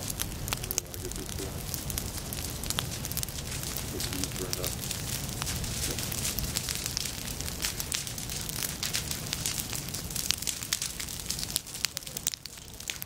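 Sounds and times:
fire crackling through dry litter: 0.0 - 13.0
low fire rumble: 0.0 - 13.0.

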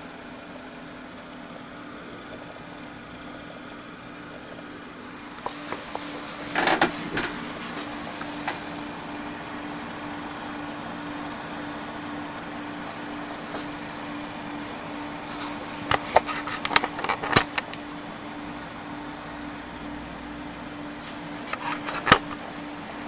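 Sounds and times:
steady hum: 0.0 - 23.0
sharp clicks and knocks: 5.4 - 7.4, 15.4 - 17.8, 21.4 - 22.4.

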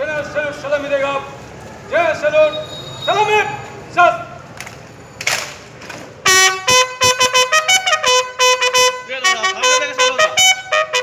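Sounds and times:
bugle call: 6.2 - 11.0.

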